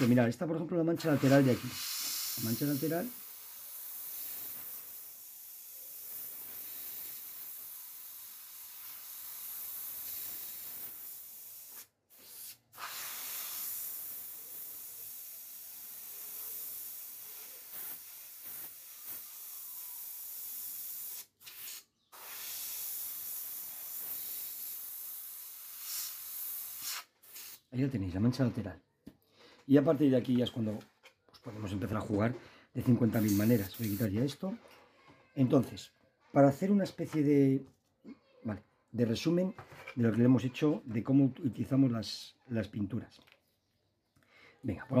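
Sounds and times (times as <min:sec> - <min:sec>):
airbrush spraying hiss: 0:00.0 - 0:00.2, 0:01.0 - 0:27.7, 0:32.8 - 0:34.3.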